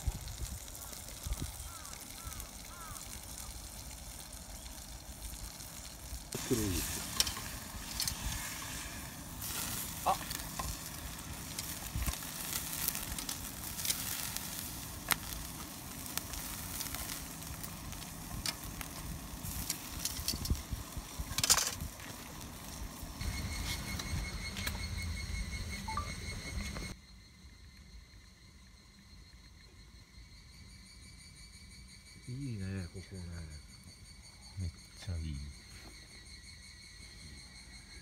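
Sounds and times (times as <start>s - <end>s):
meat sizzling on grill: 0.0s - 25.2s.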